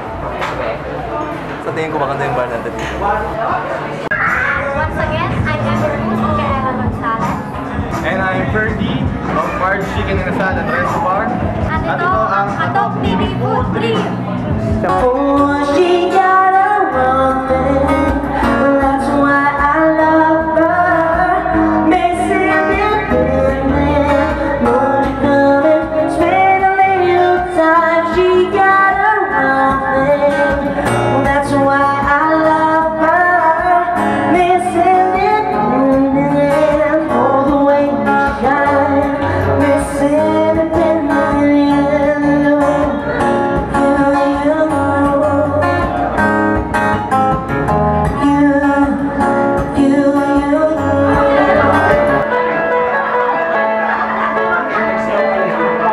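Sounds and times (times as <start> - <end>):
strummed acoustic guitar: 1.2 - 55.9
person singing: 14.5 - 46.3, 48.0 - 52.9.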